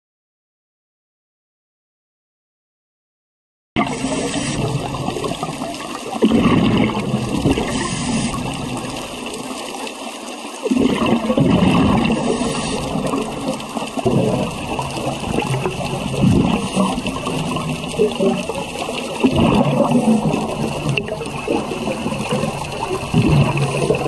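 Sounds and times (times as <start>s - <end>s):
underwater hiss: 3.8s - 6.1s, 6.8s - 10.0s, 11.6s - 18.0s
diver's exhaled bubbles: 3.8s - 9.6s, 10.6s - 24.0s.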